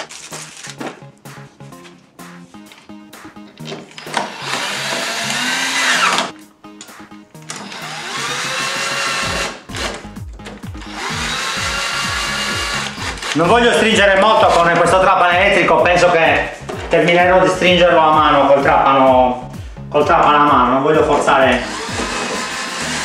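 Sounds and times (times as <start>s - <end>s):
cordless drill driving screws: 4.0s - 6.3s, 7.5s - 10.2s, 10.8s - 13.5s, 21.5s - 23.0s.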